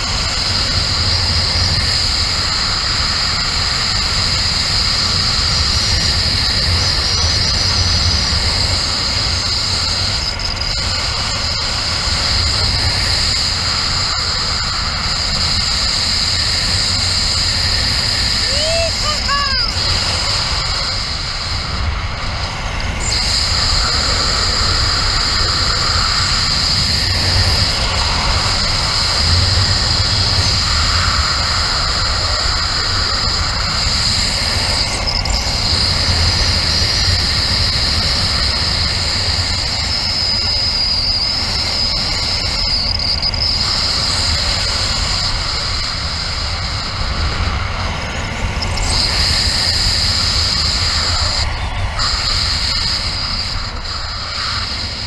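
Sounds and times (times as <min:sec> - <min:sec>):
wind rushing over microphone: 0:00.0 - 0:55.0
high whistle: 0:13.2 - 0:19.8, 0:34.6 - 0:44.7.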